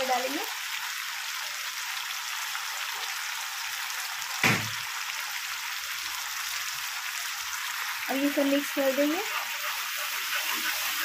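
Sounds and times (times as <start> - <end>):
food sizzling in hot oil: 0.0 - 11.0
sharp knock: 4.4 - 4.8.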